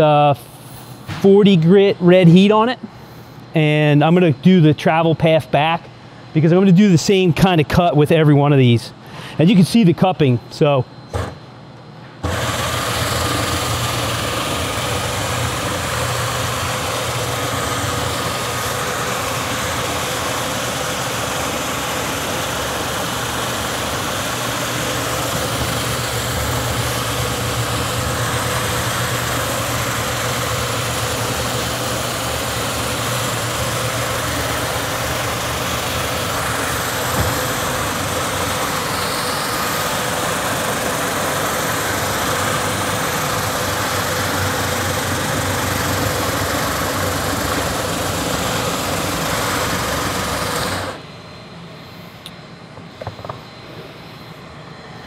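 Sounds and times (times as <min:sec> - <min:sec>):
thin whine: 0:00.0 - 0:55.0
abrasive sanding wood: 0:12.2 - 0:51.0
floor sander motor hum: 0:12.2 - 0:52.2.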